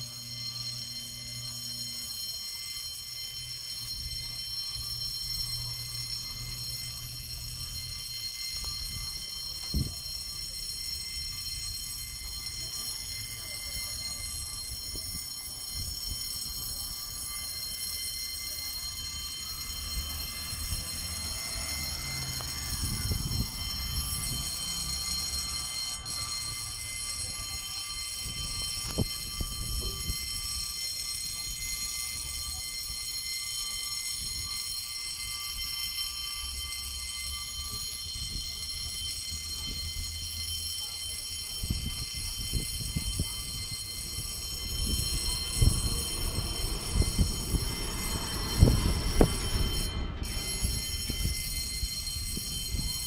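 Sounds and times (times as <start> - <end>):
level crossing warning alarm: 0.0 - 53.0
low rumble: 44.0 - 51.7.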